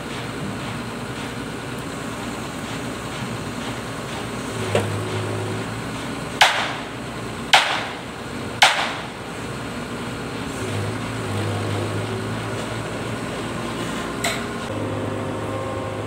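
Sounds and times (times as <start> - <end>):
crane engine idling: 0.0 - 16.0
loud sharp knock: 6.4 - 6.8, 7.5 - 8.0, 8.6 - 9.1.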